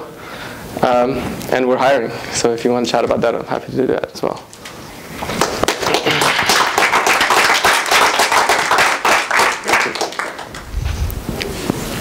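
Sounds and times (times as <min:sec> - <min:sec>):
audience applauding: 0:05.3 - 0:10.7.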